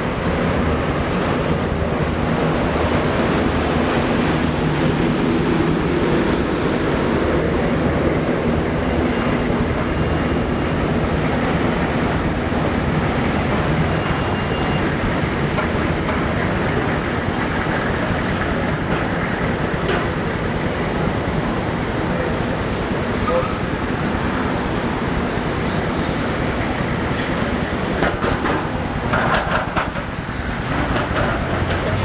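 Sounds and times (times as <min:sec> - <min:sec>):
city street traffic: 0:00.0 - 0:32.0.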